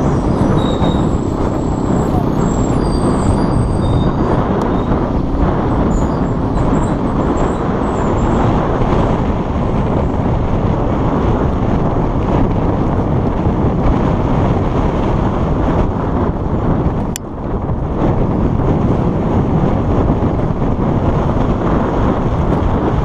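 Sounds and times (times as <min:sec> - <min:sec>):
loud vehicle rumble: 0:00.0 - 0:23.0.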